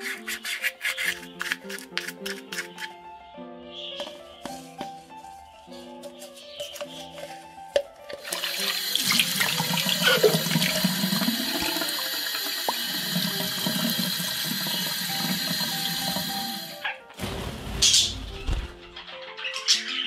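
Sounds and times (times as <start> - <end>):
water running from a tap: 8.2 - 16.8.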